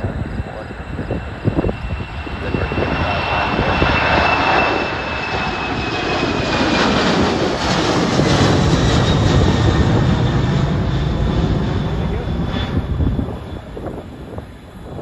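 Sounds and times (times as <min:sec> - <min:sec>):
jet engines rumbling and whining: 0:00.0 - 0:15.0.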